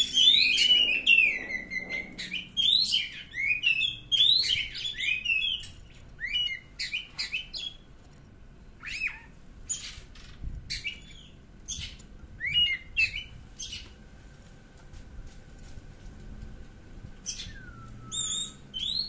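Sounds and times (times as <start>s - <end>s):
bird singing whistled notes: 0.0s - 7.8s, 10.7s - 13.8s, 17.2s - 19.0s.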